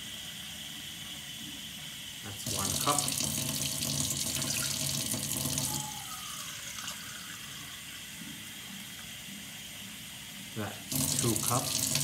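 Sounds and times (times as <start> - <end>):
tap water filling a plastic cup: 2.4 - 5.7.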